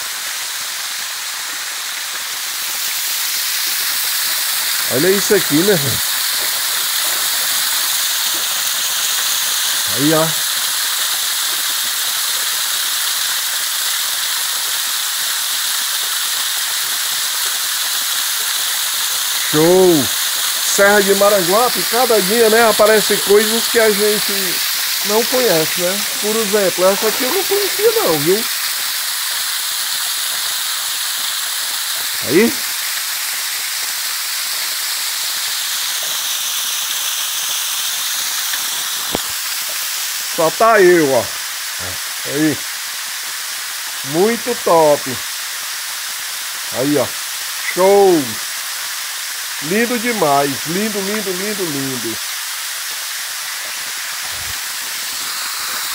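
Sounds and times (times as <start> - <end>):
waterfall rushing: 1.7 - 11.7, 19.0 - 34.2, 35.0 - 42.7, 44.0 - 45.2, 46.7 - 48.4, 49.6 - 55.9.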